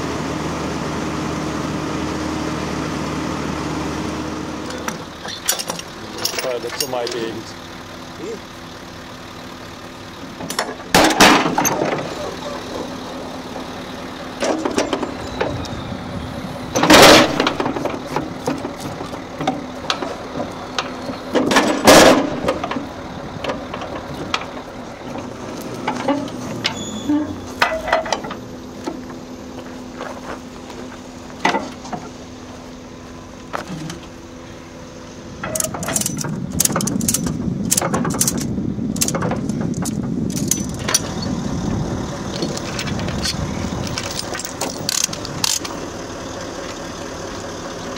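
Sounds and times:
engine idling: 0.0s - 47.9s
loud metallic clanks: 10.4s - 12.3s, 16.7s - 20.2s, 20.8s - 24.7s, 35.4s - 41.3s.

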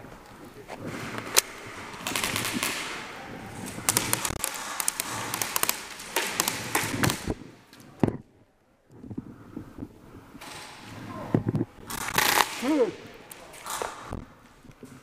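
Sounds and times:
airsoft guns firing bursts: 2.0s - 3.0s, 3.9s - 7.3s, 11.9s - 12.8s.

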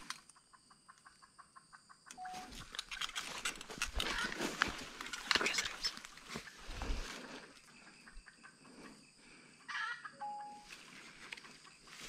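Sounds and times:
footsteps rustling through undergrowth: 2.3s - 7.7s, 10.6s - 12.0s.

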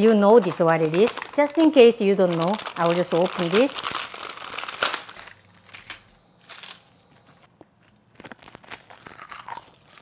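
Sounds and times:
brittle seaweed sheets crackling: 0.0s - 10.0s
plastic packet crinkling and tearing: 0.0s - 10.0s.

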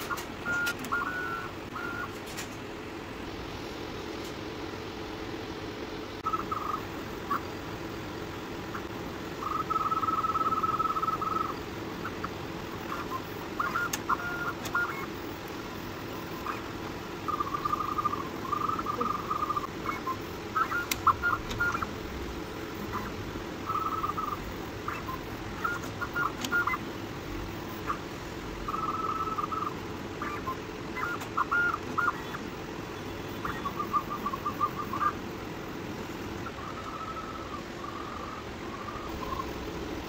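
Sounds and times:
sharp clicks: 0.0s - 1.1s, 12.9s - 15.6s, 20.7s - 21.9s, 25.7s - 26.8s
fan hum: 0.0s - 40.0s.

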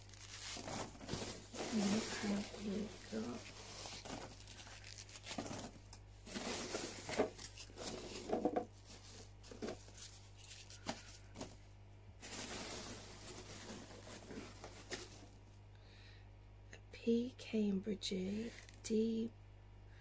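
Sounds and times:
packing peanuts rustling in box: 0.0s - 11.6s, 12.2s - 15.4s.

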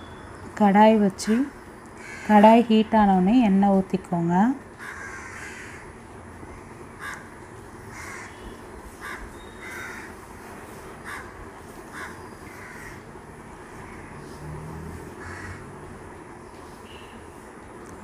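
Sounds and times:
crows cawing: 2.0s - 2.4s, 4.8s - 10.3s, 11.0s - 13.1s, 15.2s - 15.7s.

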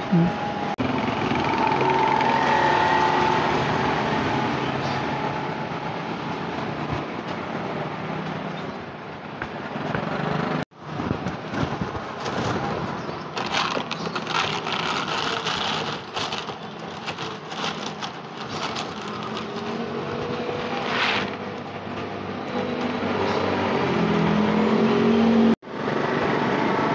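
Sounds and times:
street traffic: 0.0s - 26.9s
plastic bag rustling: 13.3s - 21.4s
kibble pouring into plastic tray: 13.4s - 19.6s.

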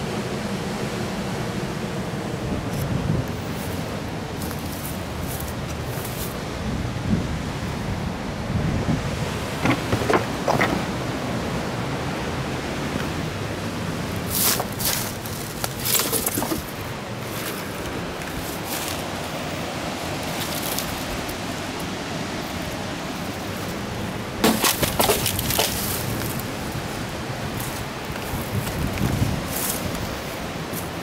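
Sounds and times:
sea surf: 0.0s - 31.0s
wind: 0.0s - 31.0s.

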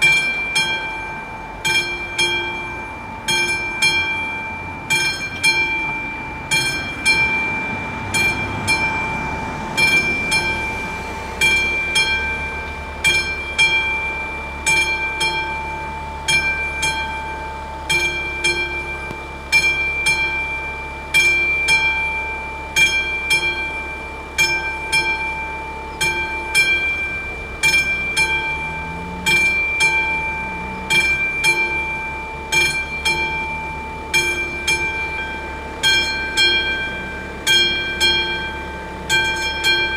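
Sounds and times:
level crossing warning bell: 0.0s - 39.9s.

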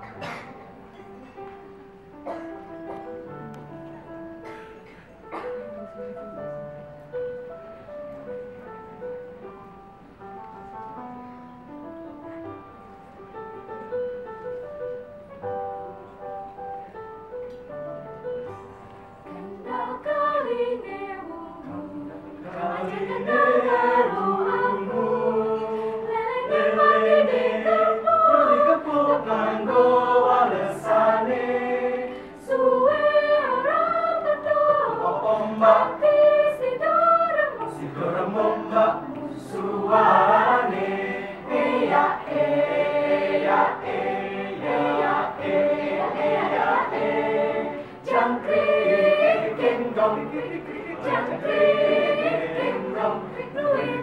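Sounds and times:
mixed choir singing folk song: 19.2s - 54.0s.

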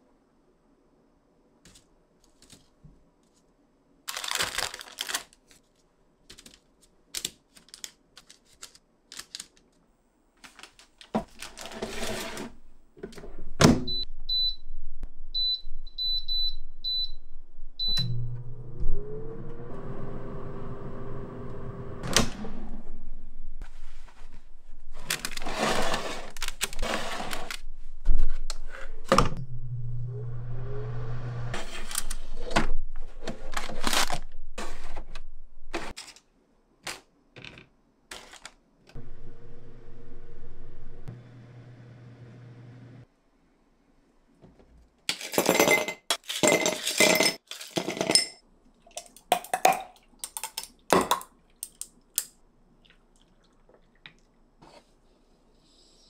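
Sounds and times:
fan motor humming: 39.0s - 43.0s.

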